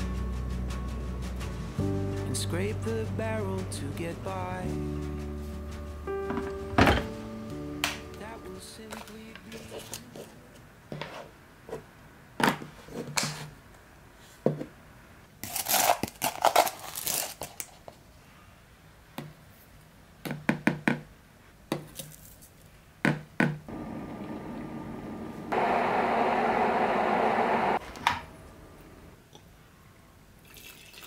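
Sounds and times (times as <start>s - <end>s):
electric kettle heating water: 23.7s - 29.2s.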